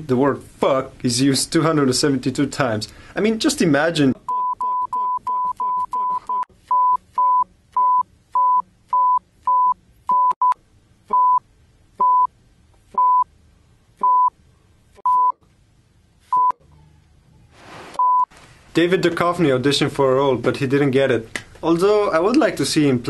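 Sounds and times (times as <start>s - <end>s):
high censor bleeps: 4.3s - 11.4s, 12.0s - 12.3s, 13.0s - 13.3s, 14.0s - 14.3s, 15.0s - 15.4s, 16.3s - 16.6s, 18.0s - 18.3s.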